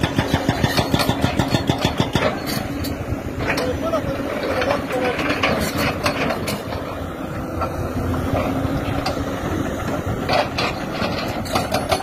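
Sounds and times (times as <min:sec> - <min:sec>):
steel clanking on rock: 0:00.0 - 0:06.9, 0:10.3 - 0:12.0
excavator diesel engine: 0:00.0 - 0:12.0.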